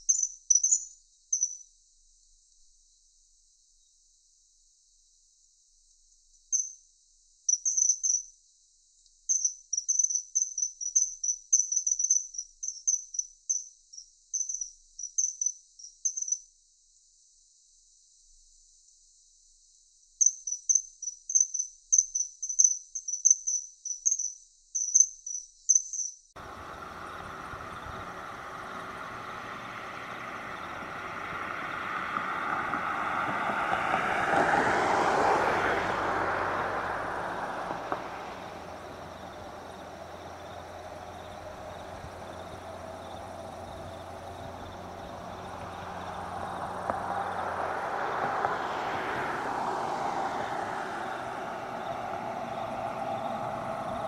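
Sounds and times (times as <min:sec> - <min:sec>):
vehicle passing by: 0:26.4 - 0:54.0.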